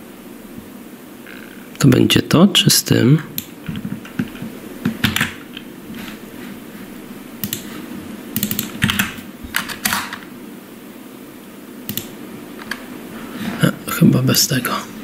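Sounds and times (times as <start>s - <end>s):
computer keyboard keystrokes: 3.4s - 5.4s, 7.4s - 7.7s, 8.4s - 10.2s, 11.9s - 12.8s.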